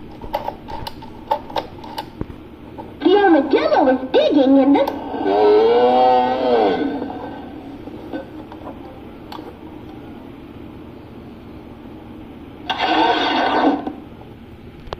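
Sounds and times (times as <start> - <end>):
television hiss: 0.0 - 14.9
loud multi-tone television sound: 2.8 - 10.4, 12.2 - 14.2.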